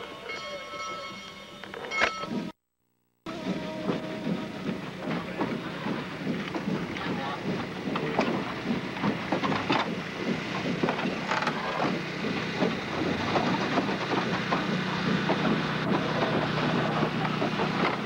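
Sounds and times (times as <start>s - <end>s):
train clanks and rattles: 3.3s - 18.0s
train rumbling on rails: 3.3s - 18.0s.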